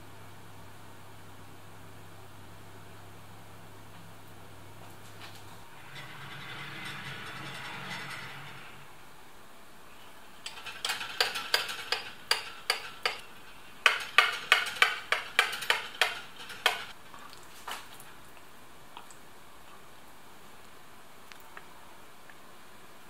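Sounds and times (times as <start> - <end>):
spatula scraping baking dish: 10.5 - 16.9.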